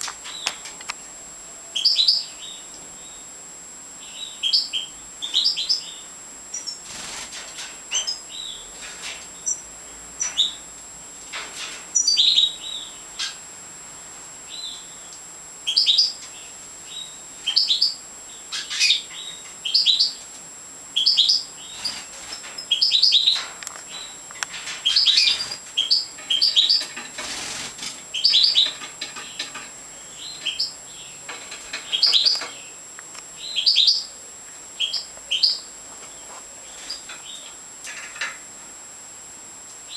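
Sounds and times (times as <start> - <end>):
goldfinches chirping: 1.7 - 3.3, 4.0 - 7.0, 7.9 - 8.7, 12.0 - 13.4, 14.5 - 20.2, 20.9 - 34.1, 34.8 - 37.6.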